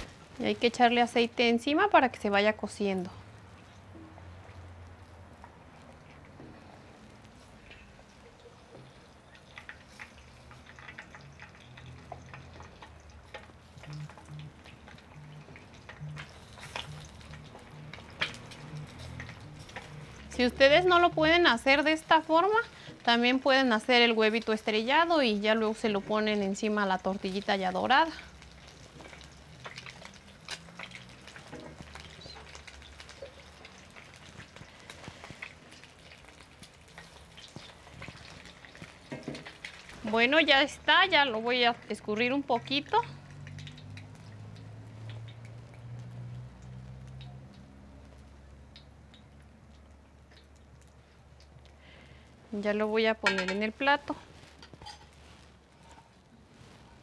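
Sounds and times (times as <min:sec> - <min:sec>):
oil sizzling and crackling: 0:00.0 - 0:57.0.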